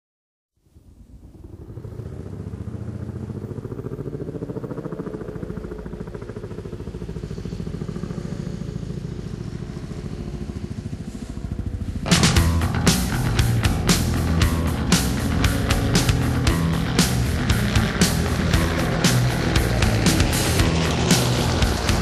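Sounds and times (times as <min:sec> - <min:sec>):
low pulsing engine-like rumble: 0:00.7 - 0:22.0.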